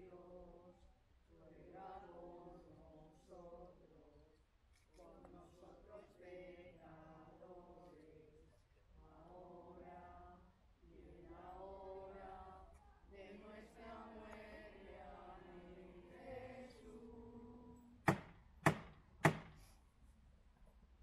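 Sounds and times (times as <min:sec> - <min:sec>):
people chanting: 0:00.0 - 0:04.2, 0:05.0 - 0:18.2
sharp knocks: 0:18.1 - 0:19.6.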